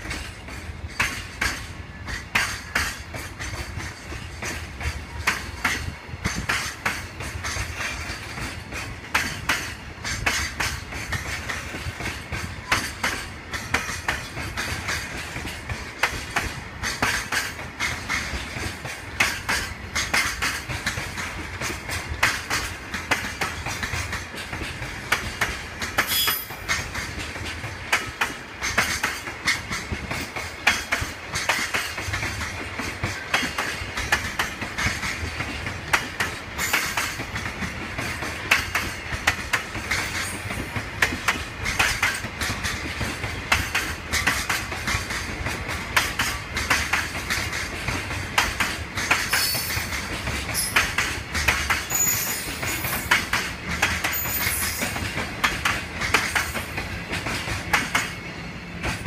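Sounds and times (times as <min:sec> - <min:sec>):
train wheels clacking over rail joints: 0:00.0 - 0:59.0
high wheel squeals: 0:51.9 - 0:53.1.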